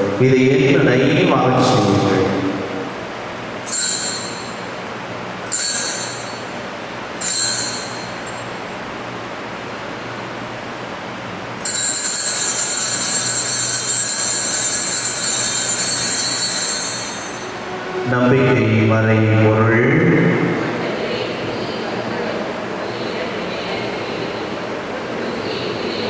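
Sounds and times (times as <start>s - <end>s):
altar bells ringing: 3.6s - 8.6s, 11.6s - 18.1s.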